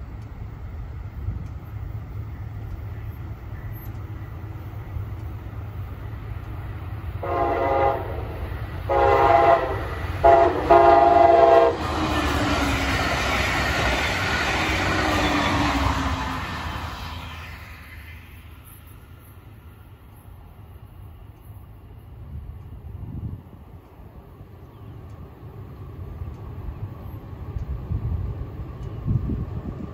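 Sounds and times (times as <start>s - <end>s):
train rushing past: 0.0s - 29.9s
train horn blasts: 7.2s - 12.3s.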